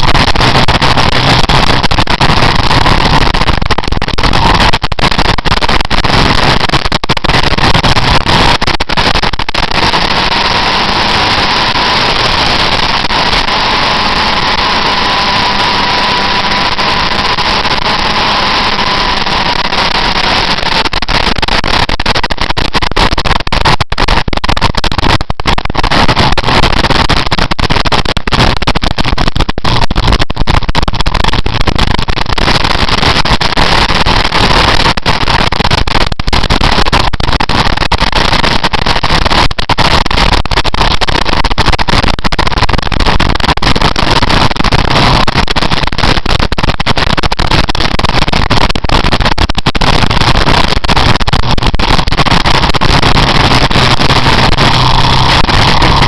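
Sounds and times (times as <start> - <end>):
crackling: 0.0 - 56.0
faint steady whine: 0.0 - 56.0
wind noise: 0.0 - 56.0
motorcycle engine: 9.9 - 20.6, 54.6 - 56.0.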